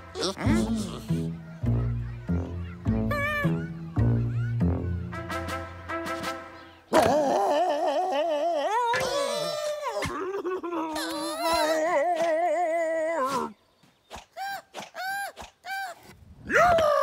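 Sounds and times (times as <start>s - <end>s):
cartoon character singing badly: 0.2s - 1.2s.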